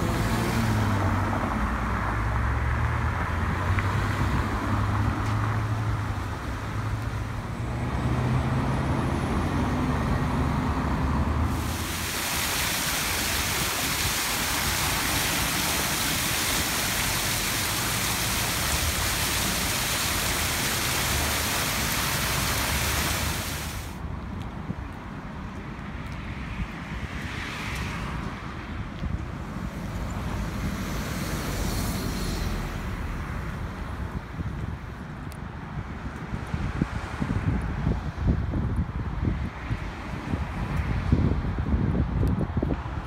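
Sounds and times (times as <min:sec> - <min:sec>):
fountain jets splashing: 0:00.0 - 0:02.4, 0:11.4 - 0:24.5
car engines passing: 0:00.0 - 0:24.4, 0:25.1 - 0:41.8.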